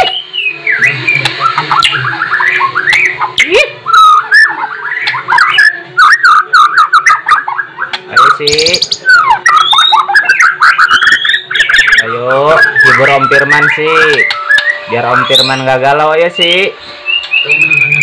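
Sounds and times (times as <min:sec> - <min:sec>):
bird singing varied song: 0:00.0 - 0:18.0.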